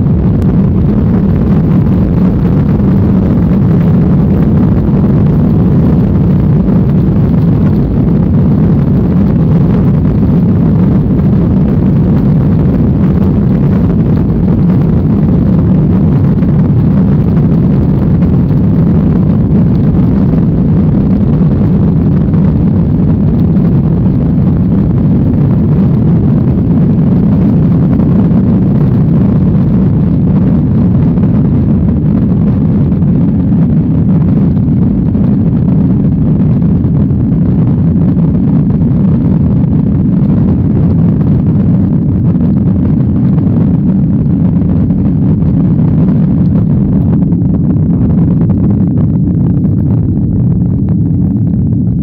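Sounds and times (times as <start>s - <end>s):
jet engines rumbling in cabin: 0.0s - 52.0s.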